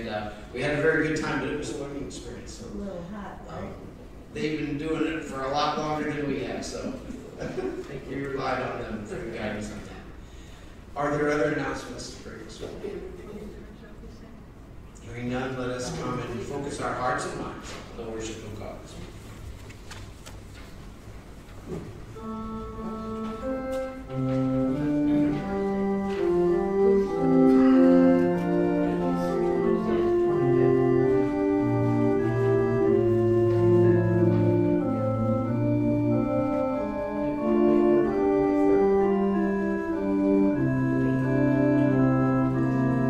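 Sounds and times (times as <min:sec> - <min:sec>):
organ playing slow chords: 0:00.0 - 0:02.5, 0:22.1 - 0:43.0.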